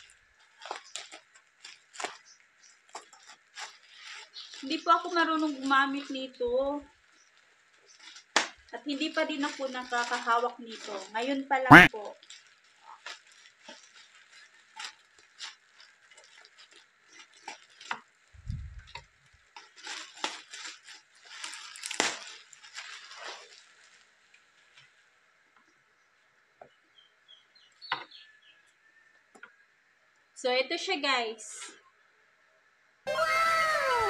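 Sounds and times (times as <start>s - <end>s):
plastic bag crinkling and tearing: 0.4s - 6.4s, 7.4s - 18.1s, 19.6s - 24.0s.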